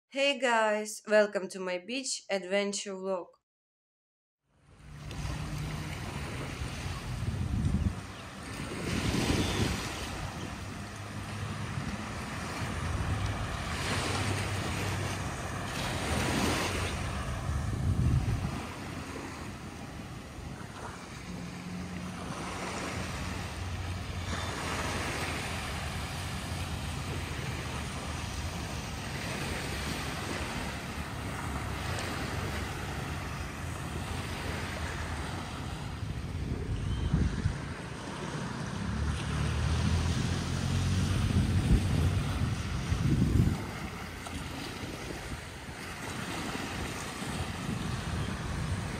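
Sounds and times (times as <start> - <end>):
waves washing onto sandy beach: 4.8 - 48.9
wind buffeting microphone: 5.2 - 21.5, 35.9 - 39.0, 39.6 - 48.9.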